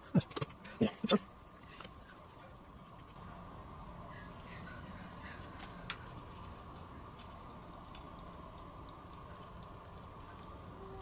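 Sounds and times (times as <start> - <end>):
low electrical hum: 0.0 - 11.0
light clicks of small parts: 5.4 - 10.7.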